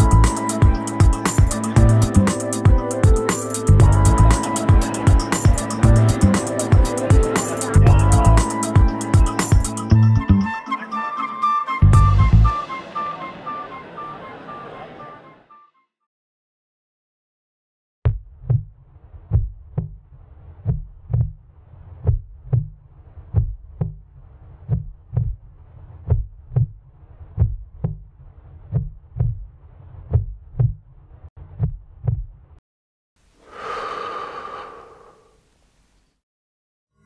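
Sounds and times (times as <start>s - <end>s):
heartbeat thumps: 0.0s - 9.8s, 20.6s - 21.4s, 22.0s - 28.1s, 28.7s - 29.5s, 30.1s - 30.8s, 31.6s - 32.3s.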